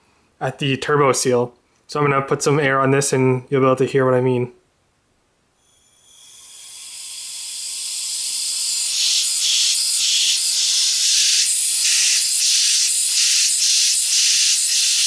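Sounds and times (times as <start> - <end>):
pressurised air hissing: 5.6 - 15.0.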